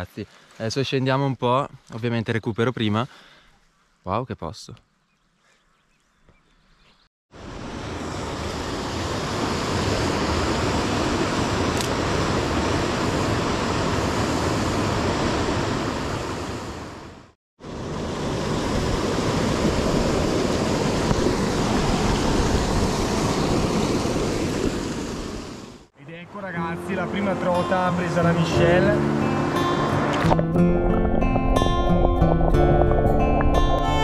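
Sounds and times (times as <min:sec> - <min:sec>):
stream and waterfall rushing: 0:07.4 - 0:25.9, 0:26.8 - 0:30.2.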